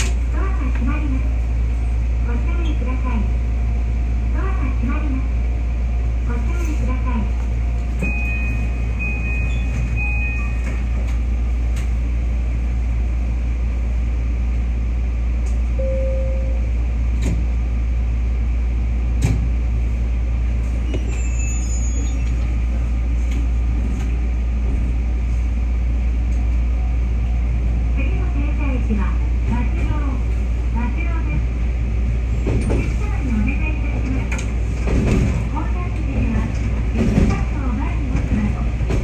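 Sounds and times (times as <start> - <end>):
train cab low hum: 0.0 - 39.0
short high beeps: 15.8 - 16.6
short lower tone: 15.8 - 16.8.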